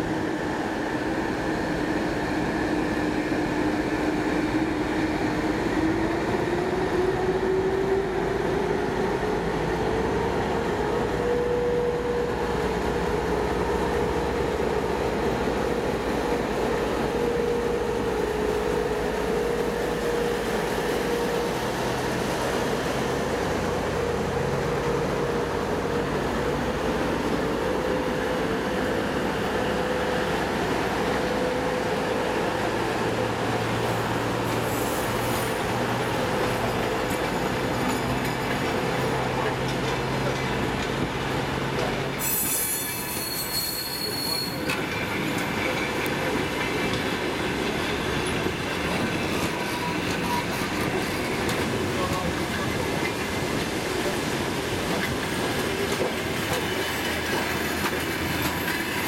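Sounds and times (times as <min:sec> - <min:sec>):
diesel locomotive engine humming: 0:00.0 - 0:42.2, 0:43.2 - 0:59.0
train wheels on track: 0:00.0 - 0:59.0
high-pitched hiss with squeal: 0:34.5 - 0:35.7, 0:42.2 - 0:44.7.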